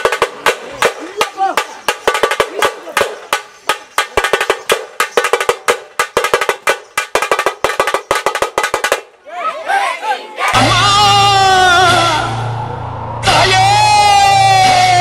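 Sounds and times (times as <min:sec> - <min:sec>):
drums struck with sticks: 0:00.0 - 0:09.1.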